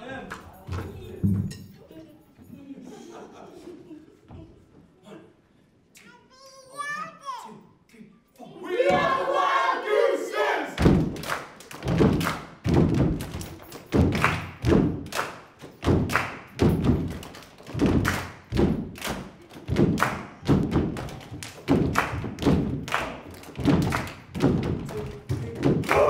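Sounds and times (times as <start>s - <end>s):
group drumming in unison: 8.8s - 9.5s, 10.7s - 26.0s.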